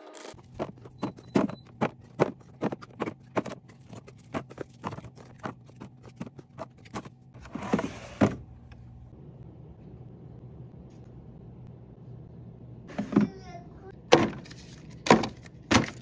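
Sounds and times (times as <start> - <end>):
bin scraping and knocking: 0.5 - 8.5.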